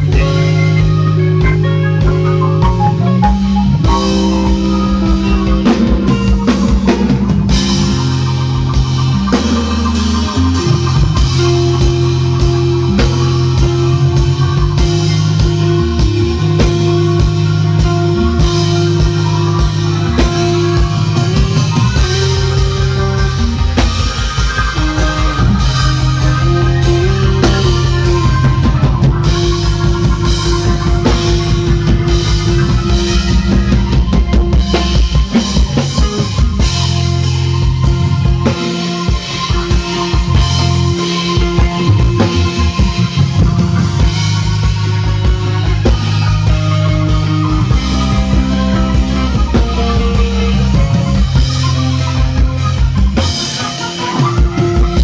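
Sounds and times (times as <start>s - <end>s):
drum kit: 0.0s - 55.0s
electric guitar: 0.0s - 55.0s
keyboards: 0.0s - 55.0s.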